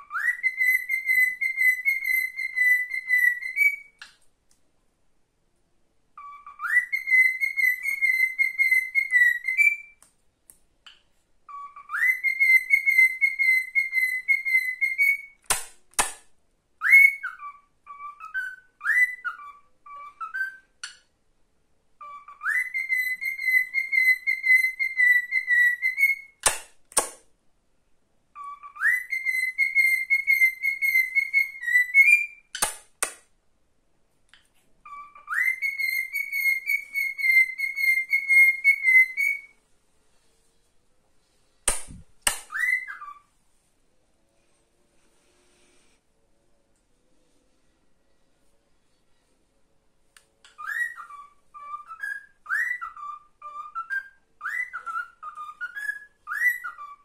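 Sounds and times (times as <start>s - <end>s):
cockatiel whistling a tune: 0.0s - 4.0s, 6.2s - 10.0s, 11.4s - 15.4s, 16.8s - 20.9s, 22.0s - 26.4s, 28.4s - 32.6s, 34.8s - 39.6s, 41.9s - 43.3s, 50.5s - 57.0s.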